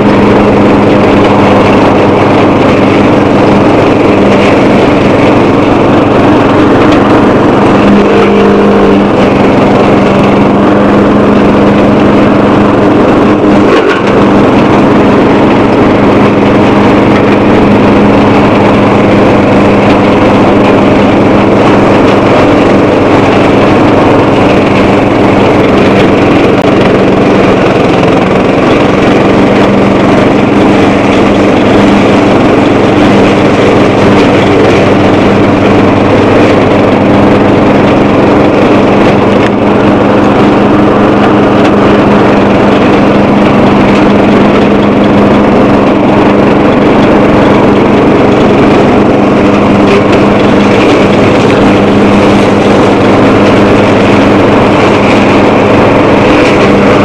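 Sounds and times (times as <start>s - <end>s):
lawn tractor engine running: 0.0s - 57.0s.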